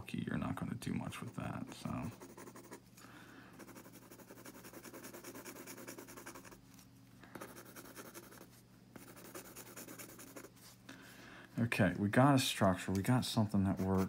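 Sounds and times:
pencil scratching on paper: 1.2s - 2.8s, 3.6s - 6.6s, 7.3s - 10.7s, 13.6s - 14.0s.

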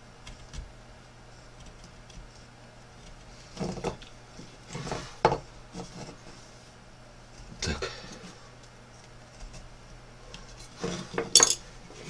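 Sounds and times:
faint hum: 0.0s - 12.0s
gouge scraping wood: 3.3s - 6.5s, 9.2s - 9.8s.

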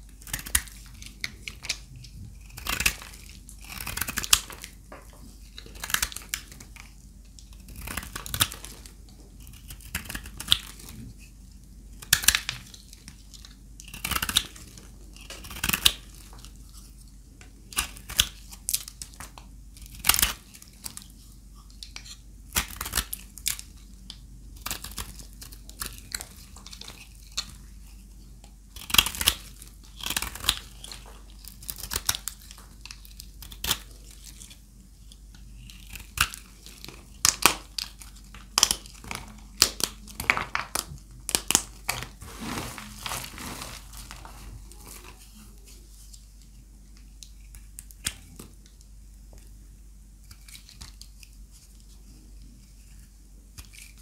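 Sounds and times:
knife cutting bar soap: 28.7s - 34.6s.

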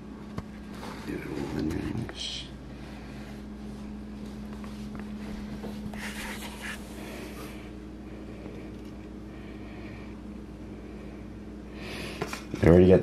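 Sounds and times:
low hum: 0.0s - 12.6s
faint rustling and handling: 2.8s - 9.2s.

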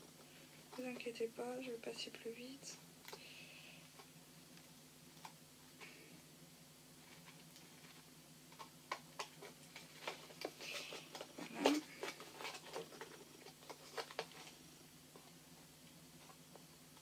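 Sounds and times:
packaging crinkling: 7.0s - 14.6s.

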